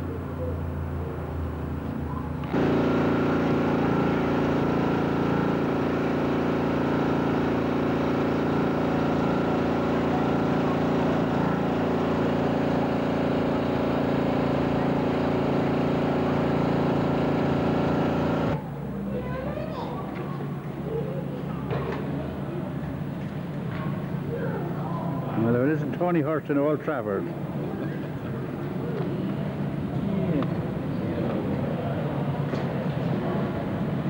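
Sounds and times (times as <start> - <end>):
vehicle engine running: 2.4 - 19.4.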